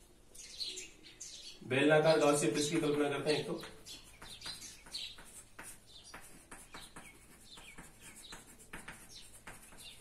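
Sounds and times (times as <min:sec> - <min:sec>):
small birds chirping: 0:00.0 - 0:10.0
chalk scraping on blackboard: 0:02.6 - 0:10.0.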